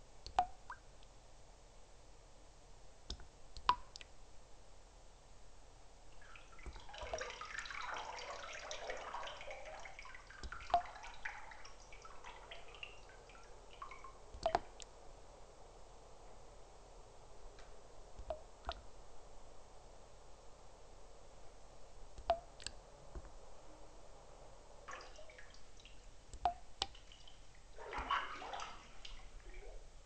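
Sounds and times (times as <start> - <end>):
water drops plinking: 0.3 - 0.8, 10.4 - 11.2, 13.9 - 14.9, 22.2 - 22.7, 26.4 - 27.1
quick small drips and splashes: 6.2 - 14.9, 24.9 - 29.8.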